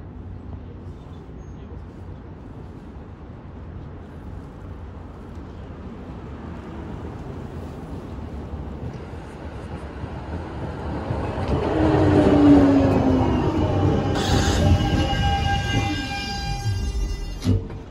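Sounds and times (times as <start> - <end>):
tram rumbling on rails: 0.0 - 17.9
tram brake whine: 10.4 - 17.9.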